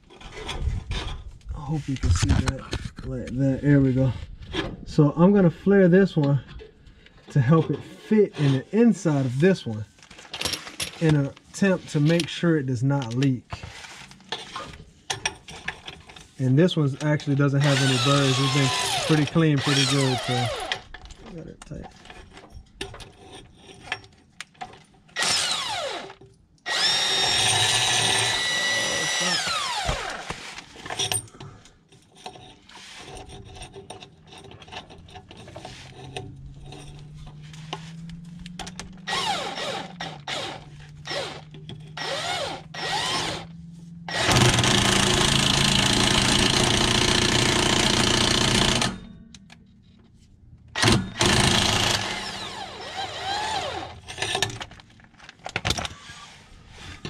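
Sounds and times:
power tool spinning: 0:17.6 - 0:20.9, 0:25.2 - 0:30.6, 0:37.0 - 0:49.1, 0:50.8 - 0:54.2.

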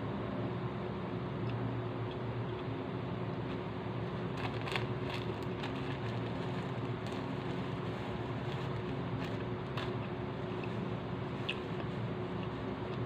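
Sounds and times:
steady low hum: 0:00.0 - 0:13.0
plastic packet crinkling: 0:04.1 - 0:13.0.

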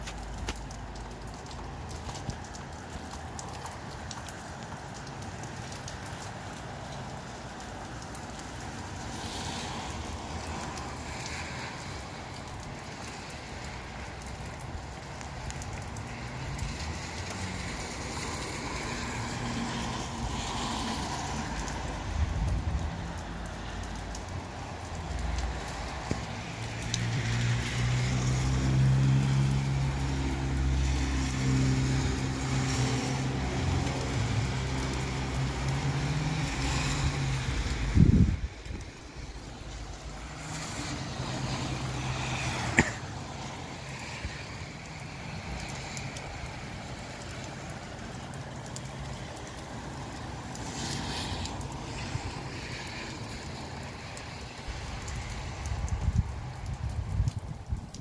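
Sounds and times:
rain shower: 0:00.0 - 0:58.0
breezy wind: 0:34.2 - 0:41.5, 0:50.1 - 0:58.0.

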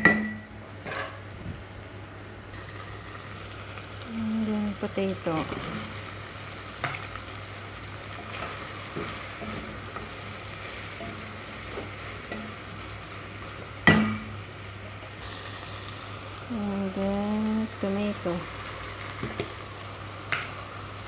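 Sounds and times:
food sizzling in oil: 0:02.5 - 0:21.0.

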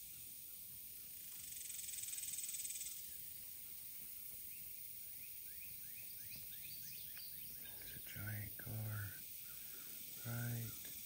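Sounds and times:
steady high insect hiss: 0:00.0 - 0:11.0
rapidly pulsing insect buzz: 0:00.3 - 0:03.3, 0:08.0 - 0:11.0.

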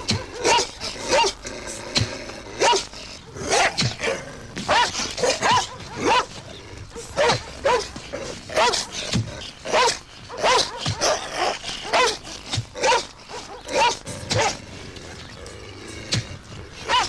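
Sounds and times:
dog barking: 0:00.0 - 0:01.4, 0:02.6 - 0:02.9, 0:04.7 - 0:09.1, 0:09.7 - 0:12.2, 0:12.8 - 0:14.6.

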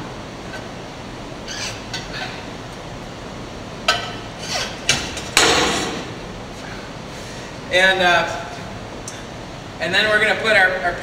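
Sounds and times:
sharp metallic clank: 0:05.4 - 0:06.2.

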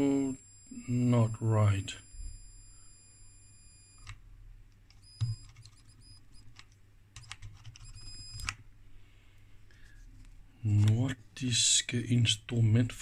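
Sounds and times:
high-pitched oscillator whine: 0:00.0 - 0:04.1, 0:05.0 - 0:06.4.

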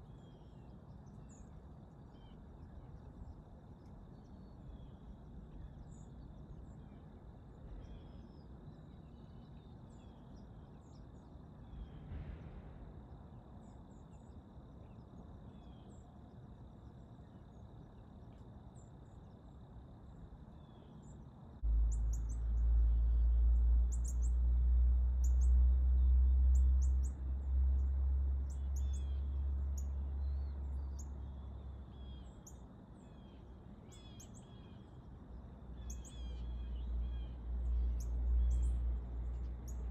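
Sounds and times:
small songbirds chirping: 0:00.0 - 0:12.6, 0:13.2 - 0:39.9
loud low rumble: 0:11.7 - 0:13.5, 0:21.6 - 0:31.6.

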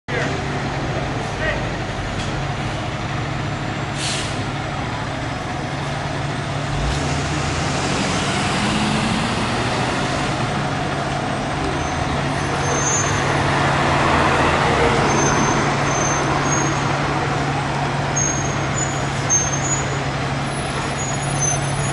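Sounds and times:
diesel engine humming: 0:00.1 - 0:21.9
air brakes hissing: 0:03.9 - 0:04.5.

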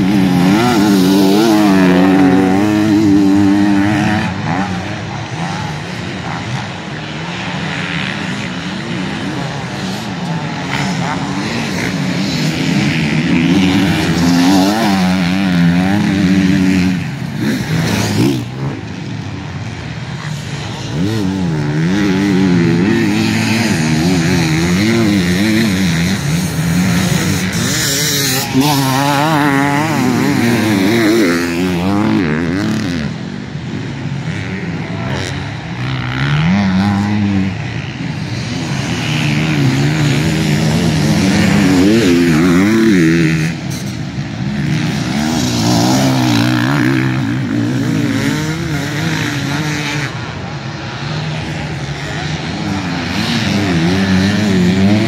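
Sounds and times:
motorcycle engines revving: 0:00.0 - 0:55.0.

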